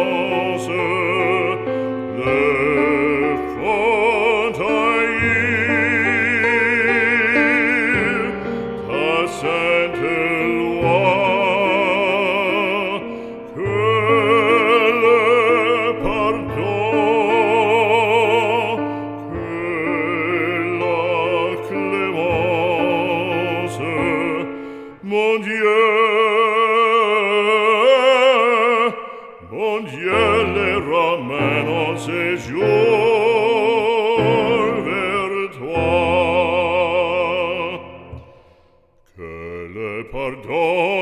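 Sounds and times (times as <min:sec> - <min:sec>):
operatic singing: 0:00.0 - 0:41.0.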